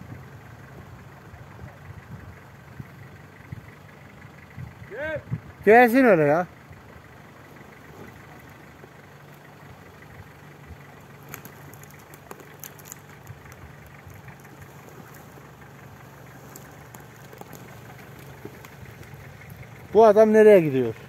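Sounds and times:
vehicle engine running at low revs: 0.0 - 21.0
small sharp clicks: 11.2 - 15.4.

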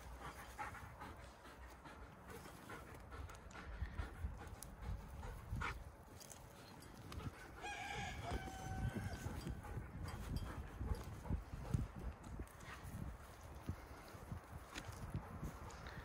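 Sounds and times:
rooster crowing: 7.6 - 9.4.

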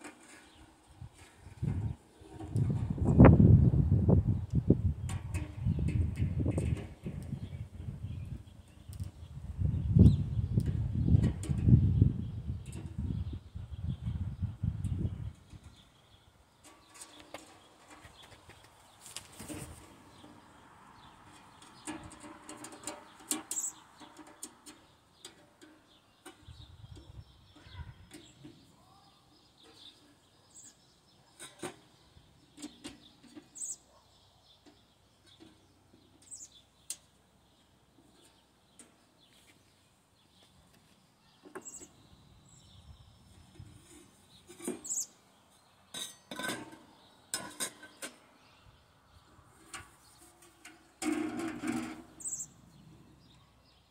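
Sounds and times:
sheet metal parts clinking: 45.9 - 48.1.

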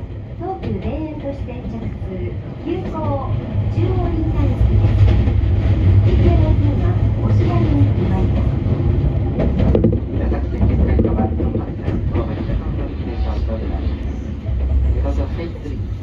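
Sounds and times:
train wheels rumbling: 0.0 - 16.0
clicks over rail joints: 9.4 - 12.2.

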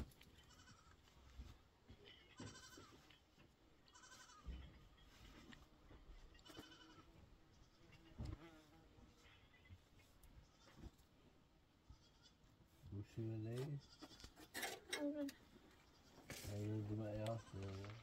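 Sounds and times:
goats bleating: 0.2 - 1.1, 2.0 - 3.2, 3.8 - 5.3, 6.3 - 8.3, 11.8 - 12.4, 17.0 - 18.0.

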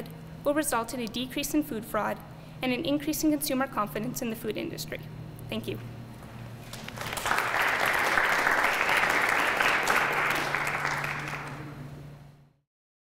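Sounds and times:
audience applauding: 6.7 - 11.9.

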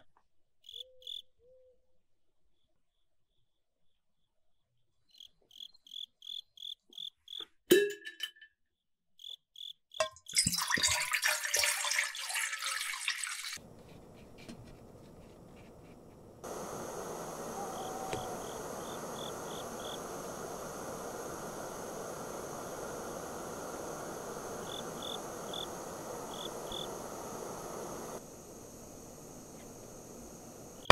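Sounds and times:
crickets chirping: 0.6 - 1.6, 5.1 - 7.4, 9.2 - 11.9, 13.5 - 30.9
water pouring into wok: 10.3 - 13.6
water boiling hiss: 10.4 - 30.9.

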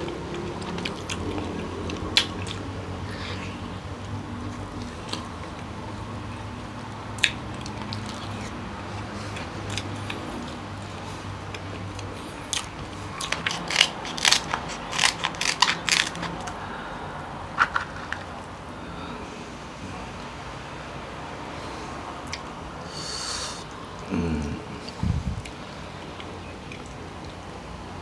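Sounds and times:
quiet chewing: 0.0 - 5.7
crab shell cracking: 12.6 - 16.6.

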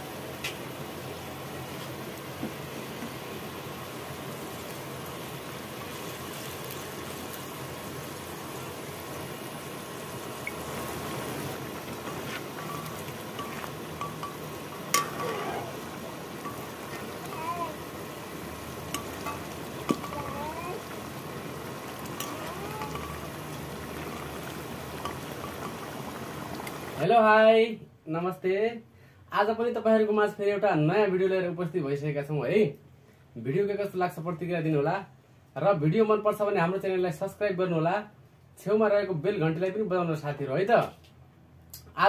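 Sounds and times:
curry bubbling in a pan: 0.0 - 27.0
metal ladle clinking against pan: 12.0 - 15.4, 18.9 - 20.2, 22.2 - 23.2.

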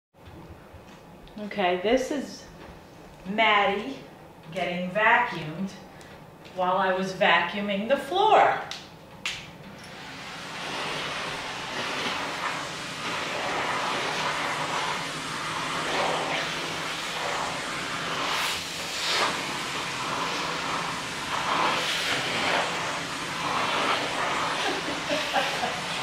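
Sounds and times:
vacuum cleaner running: 9.6 - 26.0.

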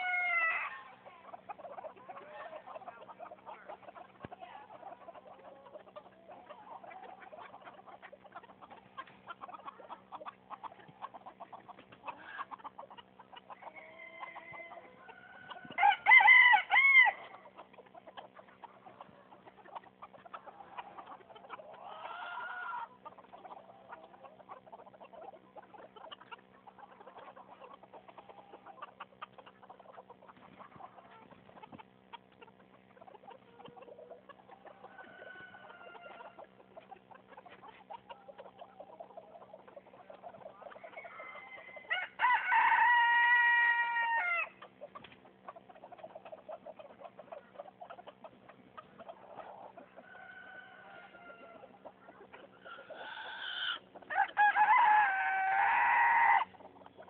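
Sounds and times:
chicken loud drawn-out calls: 0.0 - 57.0
chickens clucking softly: 0.0 - 57.0.

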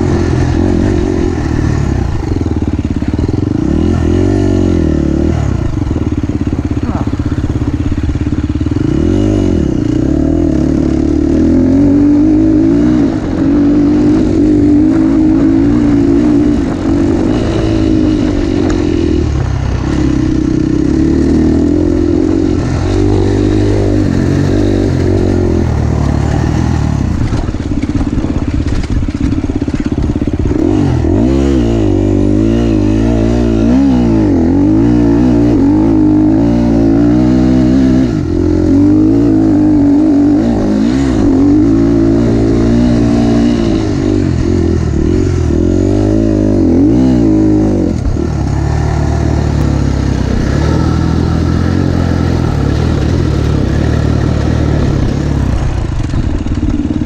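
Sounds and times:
motocross engine revving: 0.0 - 57.0.

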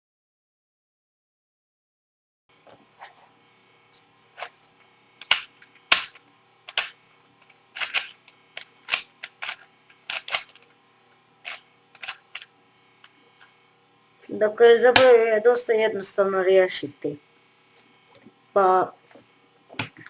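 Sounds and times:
puzzle cube clacking: 5.2 - 7.0, 7.8 - 10.7, 11.4 - 12.5.

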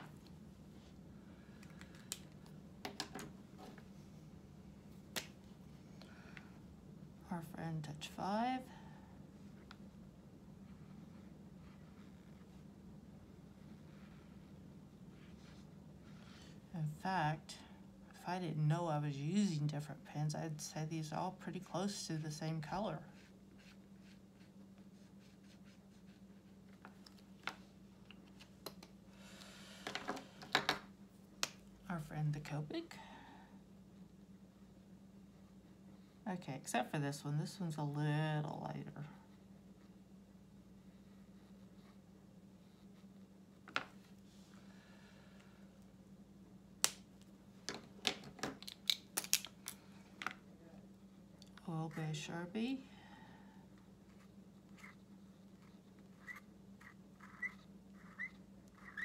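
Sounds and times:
steady low hum: 0.0 - 48.3, 49.0 - 59.0
marker scratching on paper: 23.2 - 26.4, 54.1 - 59.0
sharp clicks and handling noise: 46.8 - 50.4.

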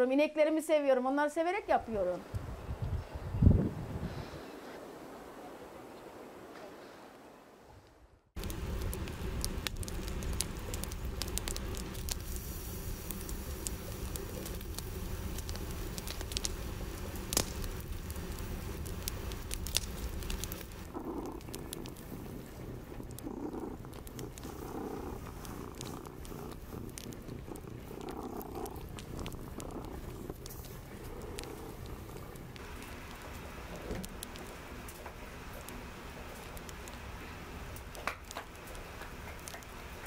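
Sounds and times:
cat purring: 8.4 - 37.8
wood fire crackling and popping: 8.4 - 40.0.

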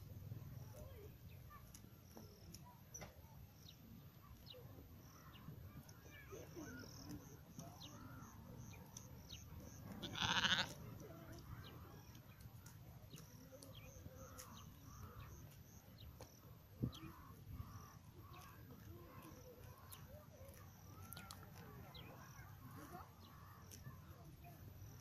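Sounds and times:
sheep bleating: 10.0 - 10.8.

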